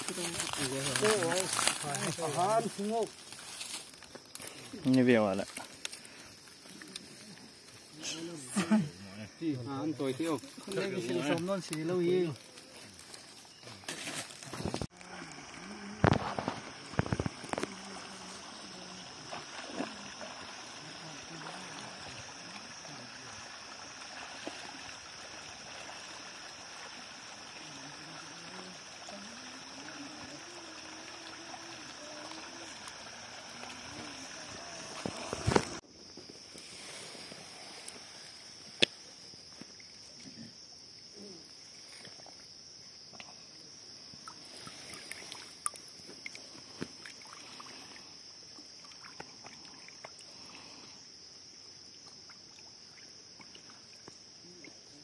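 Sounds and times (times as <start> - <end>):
people wading in water: 0.0 - 35.8, 36.6 - 55.0
forest insects droning: 0.0 - 55.0
river water over stones: 0.0 - 55.0.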